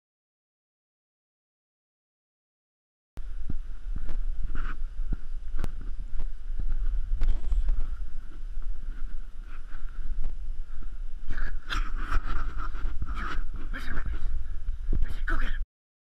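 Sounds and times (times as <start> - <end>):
wind buffeting microphone: 3.2 - 15.6
footsteps on muddy grass: 3.3 - 14.7.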